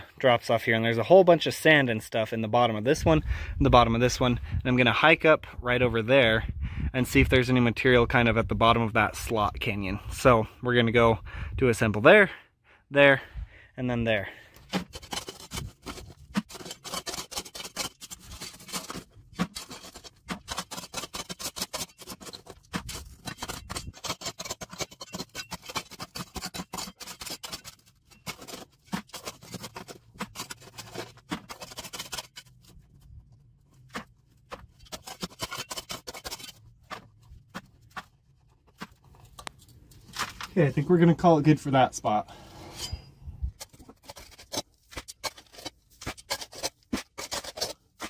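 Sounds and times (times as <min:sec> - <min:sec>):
gravel scraped into a bucket: 0:14.8 - 0:32.8.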